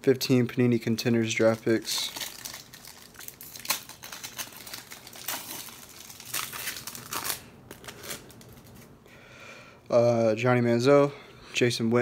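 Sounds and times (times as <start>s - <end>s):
foil wrapper crinkling and tearing: 1.0s - 8.9s.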